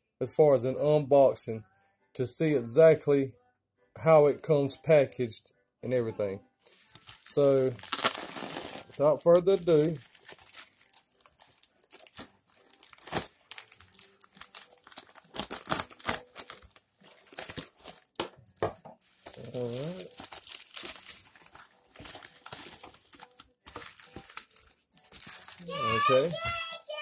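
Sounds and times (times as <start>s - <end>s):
plastic mailer crinkling: 6.9s - 26.8s.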